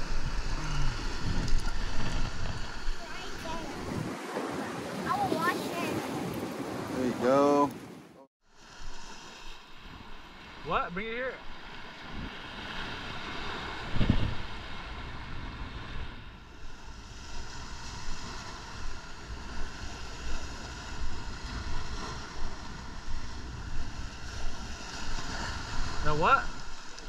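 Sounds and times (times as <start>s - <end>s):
surf washing against rocks: 0.0s - 7.9s, 8.6s - 27.0s
wind buffeting microphone: 0.0s - 8.1s, 11.5s - 27.0s.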